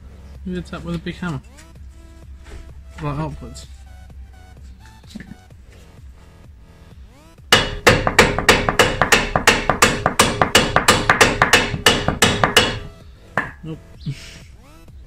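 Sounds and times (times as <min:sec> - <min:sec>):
hammer striking steel: 0:07.5 - 0:13.6.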